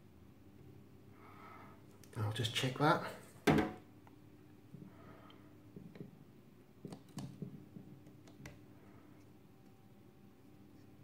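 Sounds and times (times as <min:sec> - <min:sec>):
faint clicks and taps: 0:06.8 - 0:08.6.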